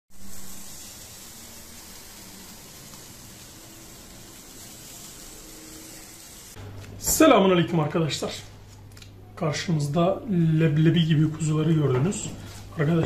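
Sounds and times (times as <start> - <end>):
meat sizzling on a grill: 0.1 - 6.6.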